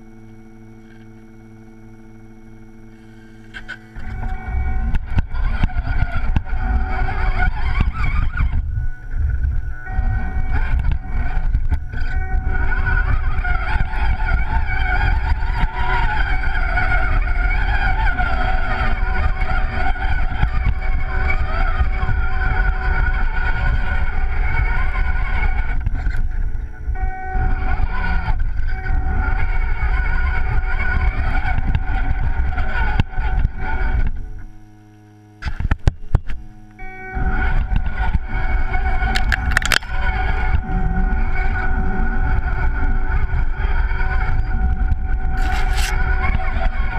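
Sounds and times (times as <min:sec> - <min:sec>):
electric motor and gears whining: 0:00.0 - 0:46.9
low rumble of chassis vibration: 0:00.0 - 0:46.9.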